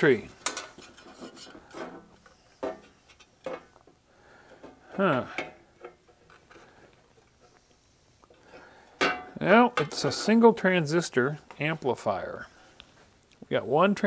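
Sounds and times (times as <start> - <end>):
man murmuring: 5.0 - 5.4.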